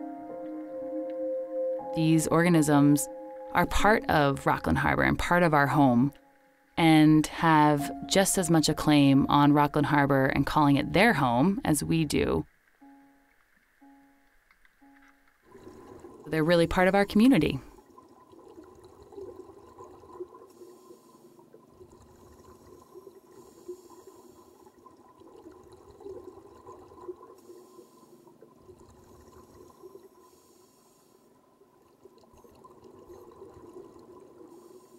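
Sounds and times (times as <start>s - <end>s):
bubbling exhalations: 15.5s - 30.3s
diver inhaling through regulator: 20.5s - 24.8s, 27.4s - 31.4s, 34.5s - 34.9s.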